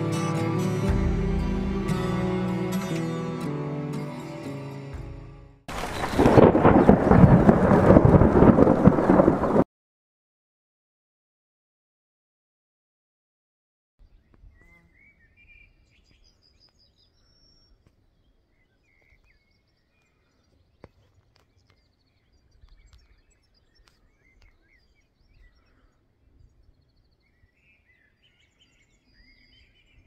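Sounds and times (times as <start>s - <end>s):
low rumble: 5.8s - 9.6s
small birds chirping: 14.0s - 30.0s.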